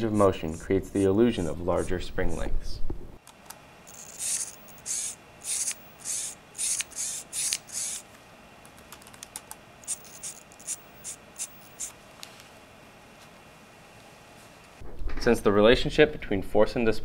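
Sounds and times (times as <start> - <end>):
small motor buzzing: 3.8 - 8.1, 9.8 - 12.0.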